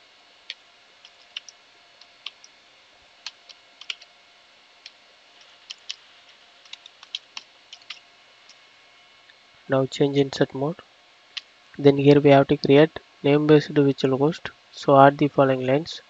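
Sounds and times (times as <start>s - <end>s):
keyboard typing clicks: 1.0s - 1.6s, 3.3s - 4.1s, 5.6s - 6.0s, 6.6s - 8.6s.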